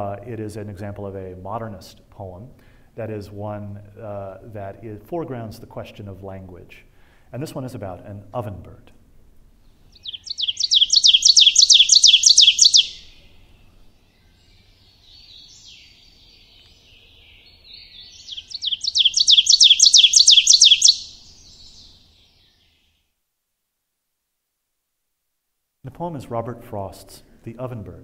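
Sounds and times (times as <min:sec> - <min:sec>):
recorded bird song over speakers: 0:00.0 - 0:06.4, 0:09.5 - 0:23.1
faint birdsong: 0:09.4 - 0:23.2.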